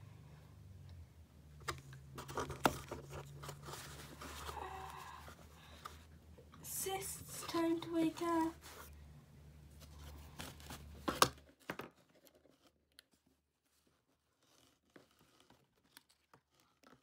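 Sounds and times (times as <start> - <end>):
plastic toys rustling and clicking: 1.6 - 4.7.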